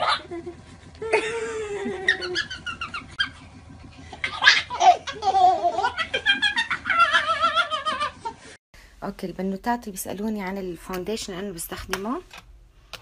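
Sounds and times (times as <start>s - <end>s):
baby laughing: 1.0s - 3.4s, 4.1s - 8.0s.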